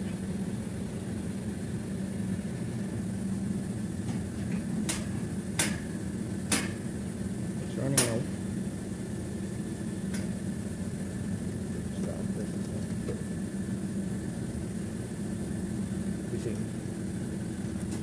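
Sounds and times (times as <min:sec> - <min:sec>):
air conditioner compressor humming: 0:00.0 - 0:18.0.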